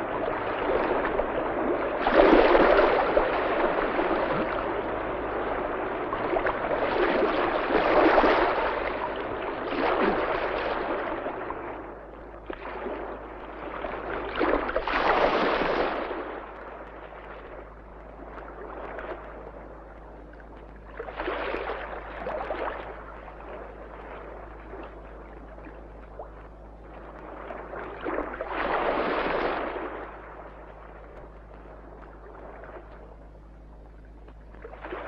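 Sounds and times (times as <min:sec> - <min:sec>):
sea waves washing onto shore: 0:00.0 - 0:24.9, 0:27.0 - 0:33.0
steady low hum: 0:00.0 - 0:35.0.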